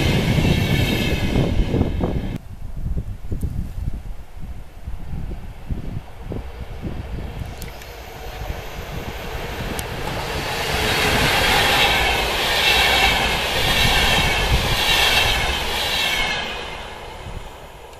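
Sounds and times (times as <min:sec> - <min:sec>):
train wheels rushing on rails: 0:00.0 - 0:02.4, 0:05.0 - 0:17.9.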